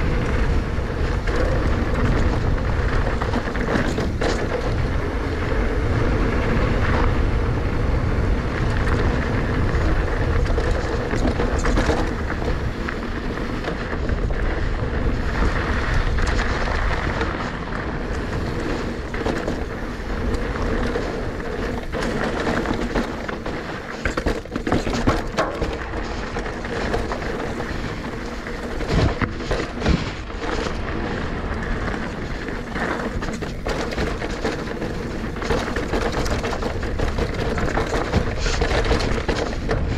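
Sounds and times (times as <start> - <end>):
bike tyres and frame rattling: 0.0 - 39.9
wind buffeting microphone: 0.0 - 39.9.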